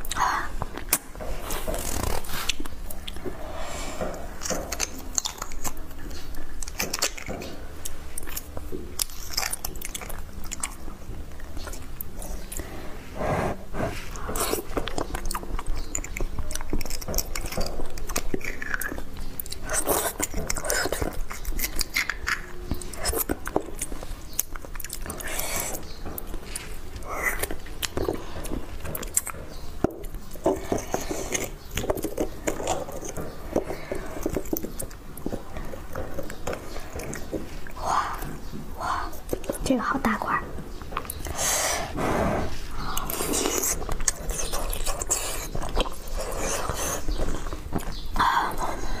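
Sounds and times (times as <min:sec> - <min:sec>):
wet chewing and smacking: 0:00.0 - 0:49.0
full mouth sound: 0:12.3 - 0:15.4, 0:41.1 - 0:47.5.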